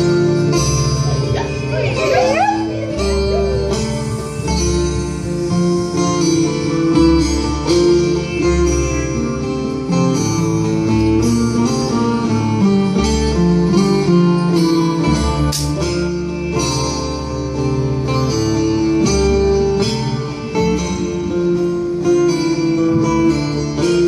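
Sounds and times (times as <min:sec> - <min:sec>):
steady beat: 0:00.0 - 0:08.9
bass line: 0:00.0 - 0:24.0
plucked-string melody: 0:00.0 - 0:24.0.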